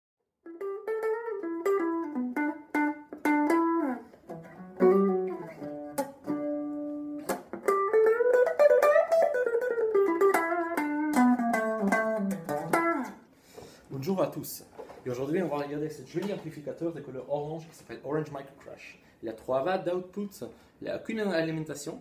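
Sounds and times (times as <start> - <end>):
electric guitar notes: 0.4 - 13.2.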